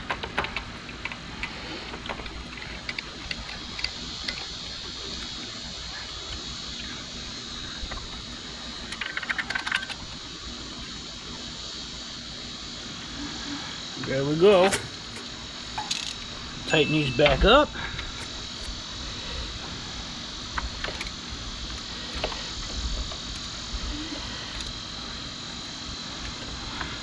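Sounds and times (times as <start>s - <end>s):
rattling clicks: 8.9s - 10.0s.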